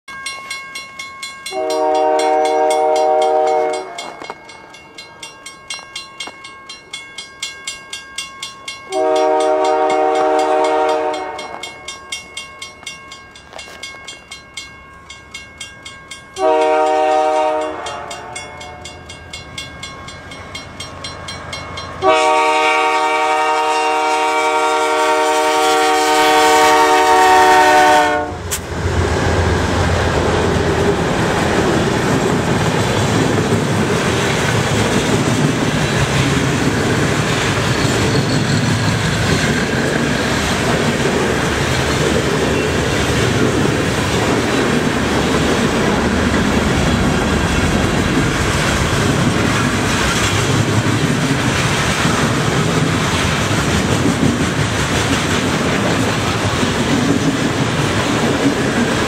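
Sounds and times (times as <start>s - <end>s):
locomotive engines and wheels: 0.1s - 22.8s, 28.4s - 59.0s
locomotive air horn blasts: 1.5s - 4.2s, 8.9s - 11.7s, 16.4s - 18.9s, 22.0s - 28.6s.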